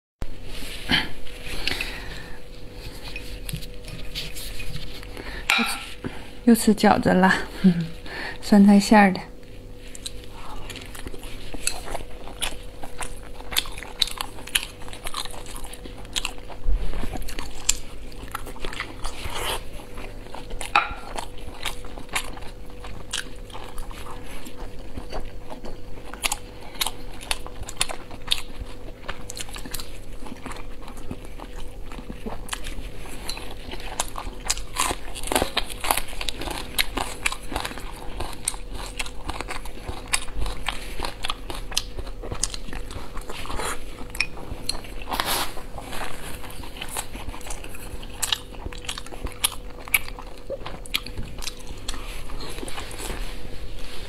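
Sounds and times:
faint steady hum: 0.2 - 54.0
chewing with mouth smacks: 9.8 - 54.0.

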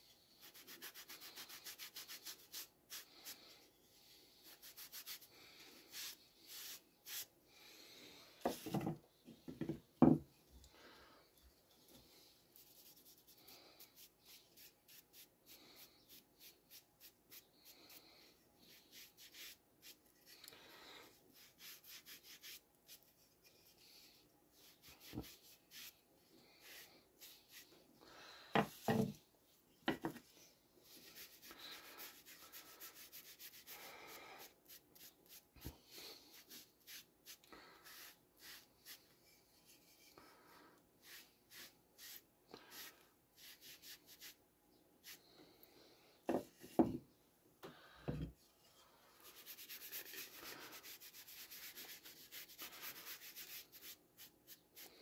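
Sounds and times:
sponge rubbing on wood: 0.4 - 3.4, 4.4 - 7.3, 49.2 - 54.9.

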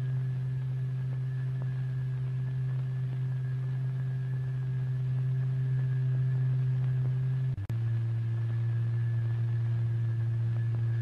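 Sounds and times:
low hum-like tone: 0.0 - 11.0.

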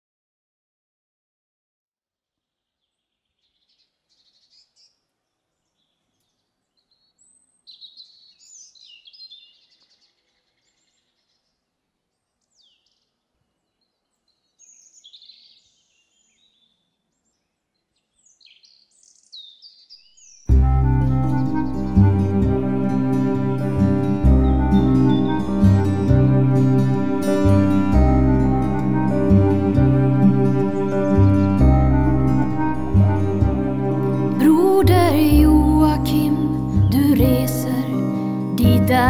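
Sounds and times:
small birds chirping and trilling: 2.7 - 20.5.

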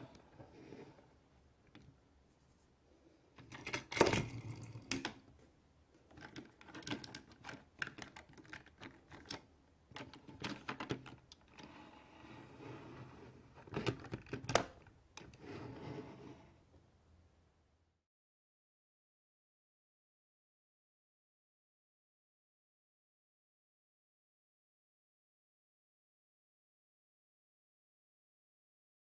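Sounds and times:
plastic rubbing scrapes: 15.3 - 16.6.

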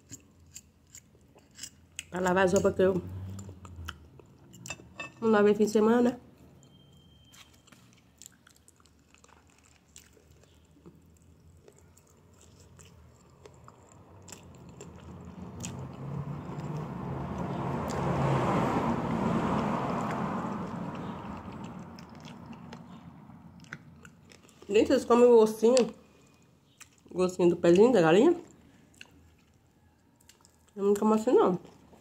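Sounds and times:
vehicle passing: 2.2 - 7.0, 11.1 - 26.5
chewing on chicken foot: 7.7 - 16.8, 21.1 - 24.7, 28.4 - 30.8.

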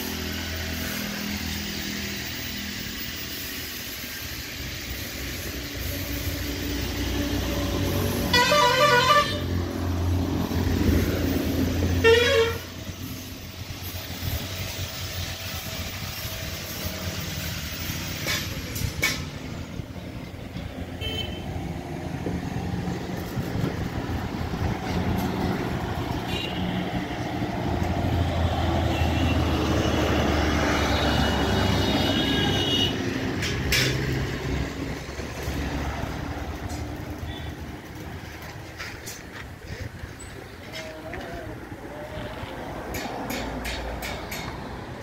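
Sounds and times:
engine running: 0.0 - 45.0
short high horn toots: 8.3 - 9.5, 12.0 - 12.8.

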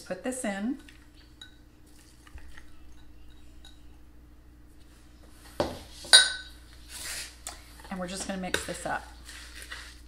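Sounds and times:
ceramic bowls clinking: 6.1 - 6.6.

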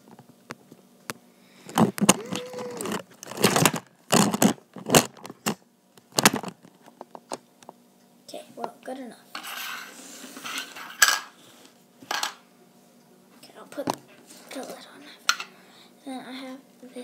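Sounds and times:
rustling scrapes: 9.4 - 11.8.

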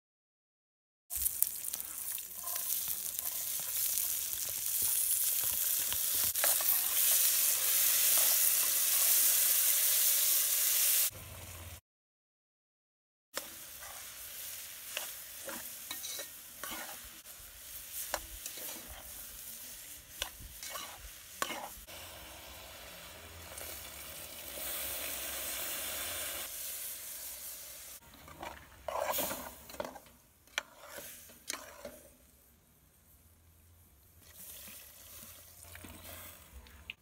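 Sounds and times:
vegetables sizzling in a pot: 1.1 - 11.8, 13.4 - 36.9
metal spoon stirring and scraping: 1.6 - 9.3, 14.9 - 17.3, 18.0 - 21.8, 28.0 - 32.2, 34.2 - 36.6.

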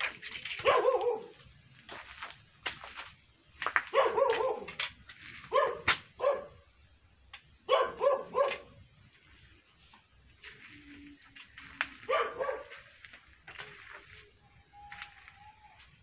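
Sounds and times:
dog barking: 0.6 - 1.4, 3.9 - 4.8, 5.5 - 6.6, 7.7 - 8.8, 12.0 - 12.9.

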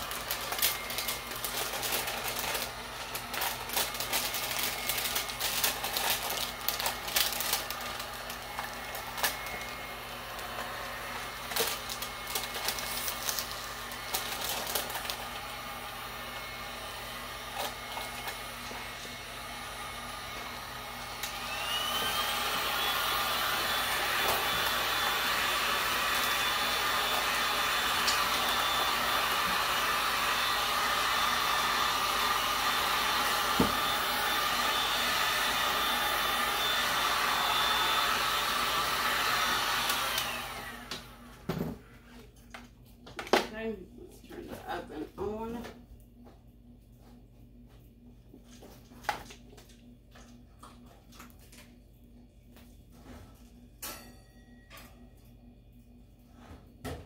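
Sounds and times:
plastic crackling: 0.0 - 9.6, 11.5 - 15.2
heat gun blowing: 0.0 - 41.5.

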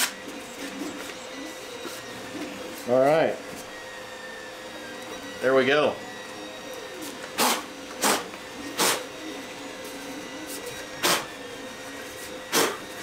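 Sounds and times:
sandpaper rubbing on plastic: 7.0 - 9.2, 9.8 - 13.0.

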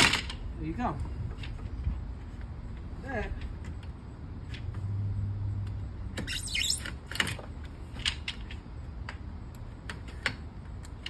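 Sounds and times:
knife blade scraping metal: 6.2 - 6.9
short squeak: 6.2 - 7.0.

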